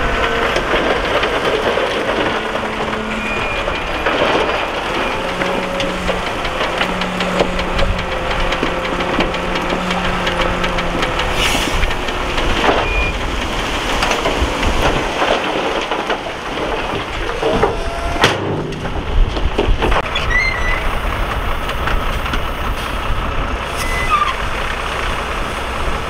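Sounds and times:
diesel machinery engine humming: 0.0s - 26.0s
metallic clanks and knocks: 0.4s - 20.3s.

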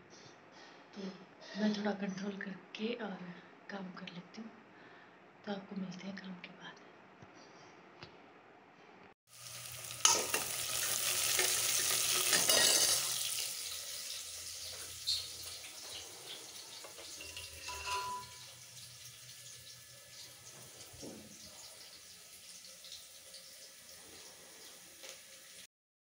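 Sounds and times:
hot oil sizzling in a pan: 9.3s - 25.7s.

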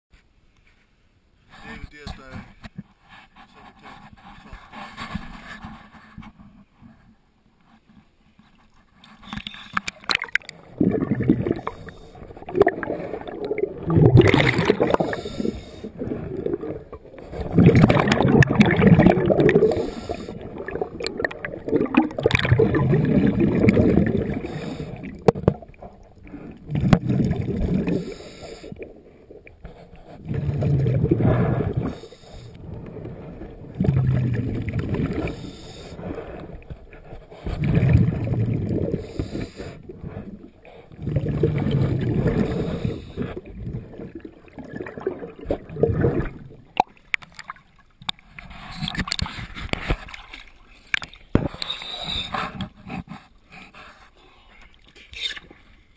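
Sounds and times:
exhaled bubbles gushing underwater: 9.9s - 36.8s, 37.4s - 48.2s
regulator inhales: 14.9s - 16.0s, 19.7s - 20.4s, 39.0s - 39.8s, 42.4s - 43.4s.

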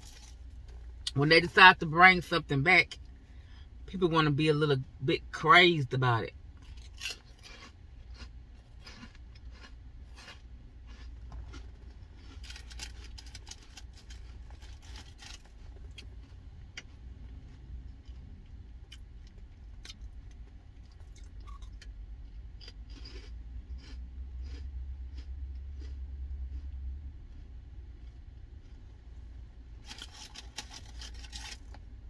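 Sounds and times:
person chewing and crunching: 0.0s - 1.4s, 5.8s - 31.8s
low car rumble: 2.9s - 32.0s
packaging clicks and scrapes: 29.8s - 31.8s.

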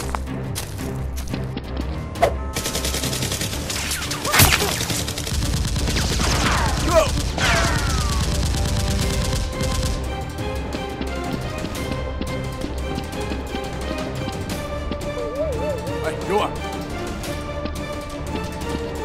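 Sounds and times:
background music: 0.0s - 19.0s
automatic gunfire: 2.6s - 10.1s.

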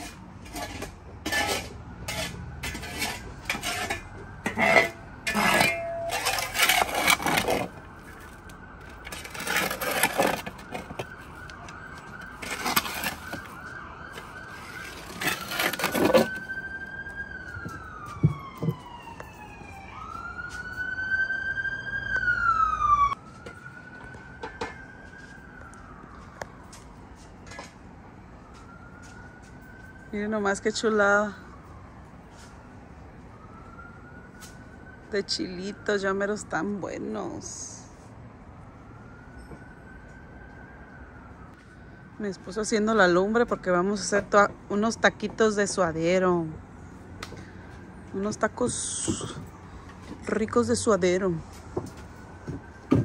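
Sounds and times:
metal shovel scraping ash: 0.0s - 11.1s, 12.1s - 13.6s, 14.2s - 16.4s
siren wailing: 1.3s - 53.0s.

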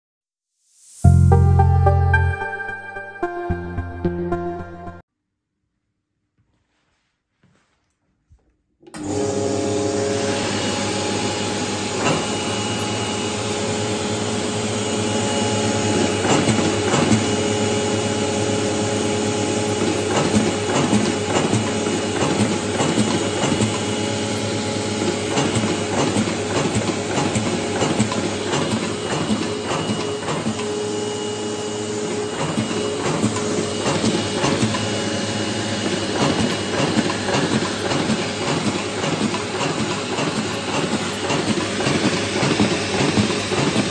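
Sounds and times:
machine motor hum: 9.0s - 43.9s
sheets clicking through machine: 15.9s - 17.4s, 19.7s - 23.9s, 25.0s - 30.8s, 32.1s - 35.0s, 35.7s - 43.9s.

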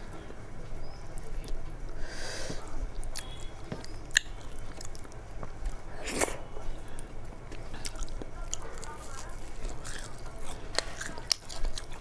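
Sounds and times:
chewing and mouth clicks: 3.0s - 12.0s.

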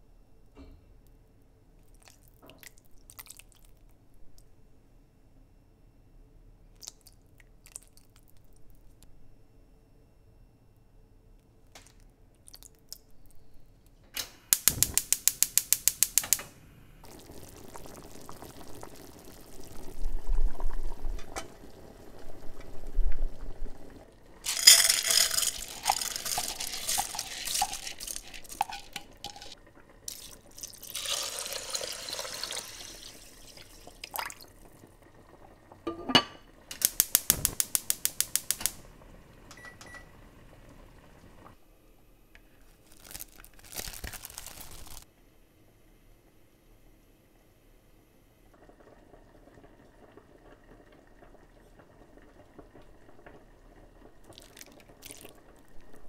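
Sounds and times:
gas hob igniter clicking: 14.2s - 16.5s, 36.7s - 38.8s
broth bubbling in a pot: 17.0s - 41.6s, 48.2s - 56.0s
pot clinking: 24.4s - 32.8s.

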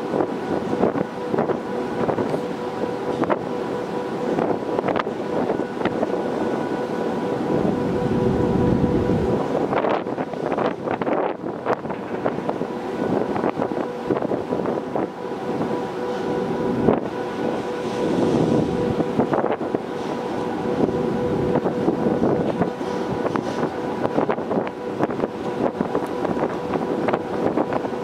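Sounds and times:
wind buffeting microphone: 0.0s - 3.6s, 4.3s - 28.0s
ship machinery hum: 0.0s - 28.0s.

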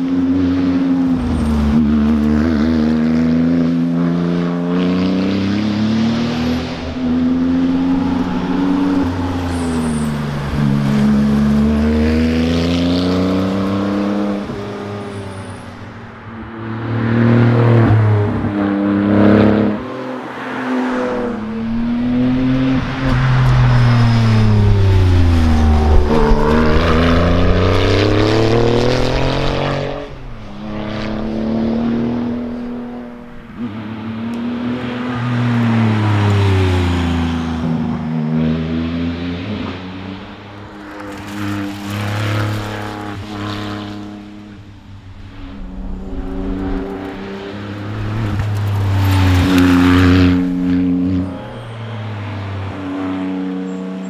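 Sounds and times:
car engine accelerating hard: 16.6s - 40.0s, 41.0s - 54.0s.

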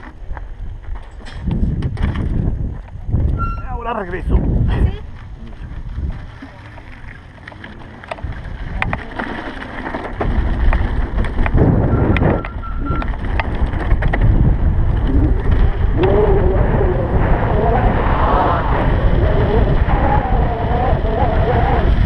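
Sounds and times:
electric bike rumble: 0.0s - 22.0s
wind on microphone: 0.0s - 22.0s
clicks and rattles: 6.4s - 14.4s.

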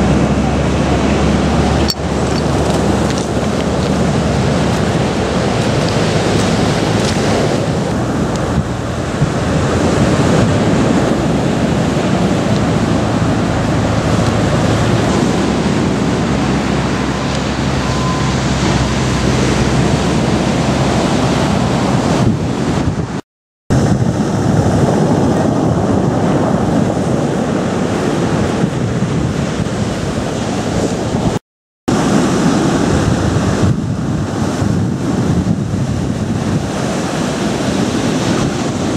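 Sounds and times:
surf breaking on pebble beach: 0.0s - 17.8s
wind buffeting microphone: 0.0s - 38.9s.

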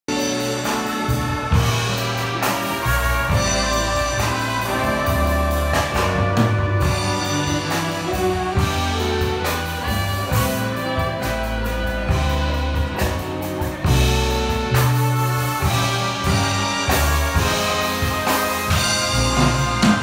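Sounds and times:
big band playing: 0.0s - 20.0s.

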